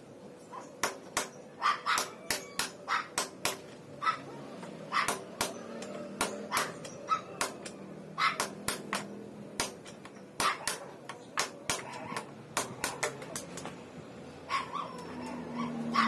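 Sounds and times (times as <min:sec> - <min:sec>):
tool tapping on metal: 0:04.6 - 0:07.8, 0:08.4 - 0:13.9.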